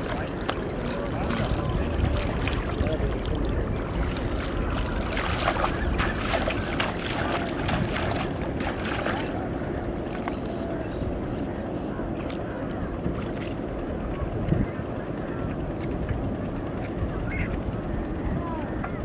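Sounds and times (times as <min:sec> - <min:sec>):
water splashing: 0:00.0 - 0:10.4
wind rumble on microphone: 0:00.0 - 0:19.0.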